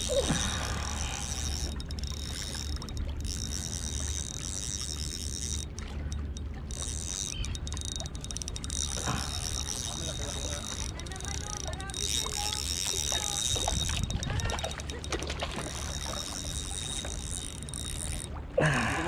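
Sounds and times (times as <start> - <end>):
fishing reel whirring: 0.0 - 18.5
wind rumble on microphone: 13.3 - 15.6.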